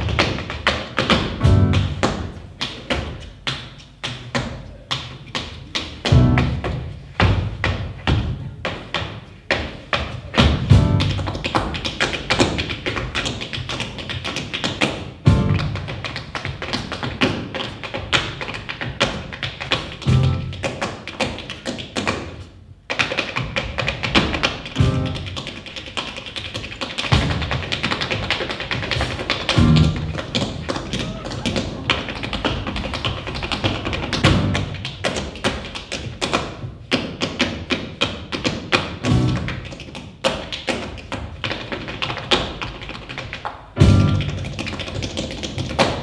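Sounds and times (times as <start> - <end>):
tap shoes on a stage floor: 0.0 - 46.0
drum kit playing: 1.3 - 2.3, 6.1 - 6.8, 10.6 - 11.3, 15.2 - 15.9, 19.8 - 20.6, 24.8 - 25.4, 28.8 - 30.4, 34.2 - 34.8, 39.1 - 39.6, 43.8 - 44.6.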